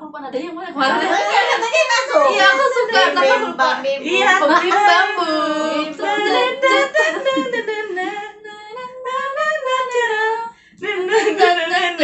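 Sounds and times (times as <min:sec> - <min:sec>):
women singing unaccompanied: 0:00.8 - 0:12.0.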